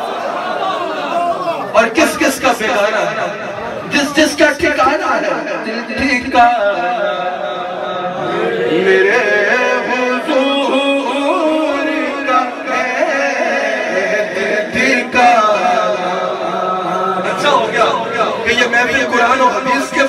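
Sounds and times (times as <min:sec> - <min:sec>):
man singing a devotional chant: 0:08.7 - 0:20.0.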